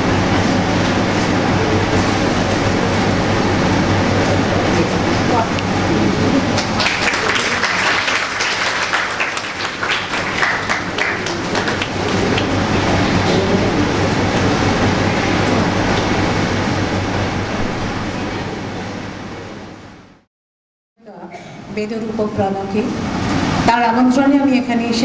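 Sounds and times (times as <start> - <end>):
low electrical hum: 0.0 - 20.3, 21.0 - 25.0
audience applauding: 6.4 - 14.3.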